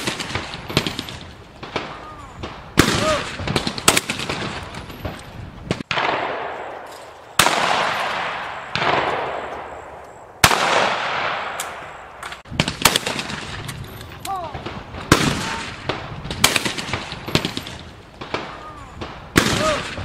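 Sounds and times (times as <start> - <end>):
shotgun shots with echo: 0.0 - 11.9, 12.6 - 13.6, 14.6 - 20.0
distant gunshots: 0.0 - 13.7, 14.6 - 20.0.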